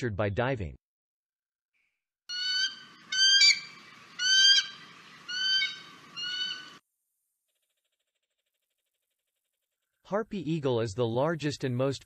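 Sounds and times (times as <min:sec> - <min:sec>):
eagle calling: 0:02.3 - 0:06.8.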